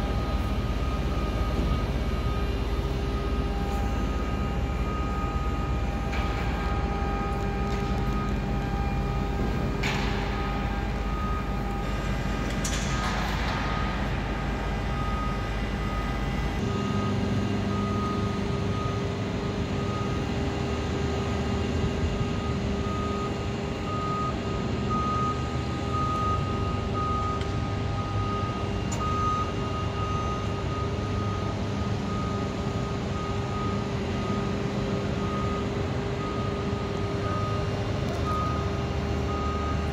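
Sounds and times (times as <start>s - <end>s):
steady hum: 0.0s - 39.9s
short repeated warning beeps: 0.1s - 13.1s.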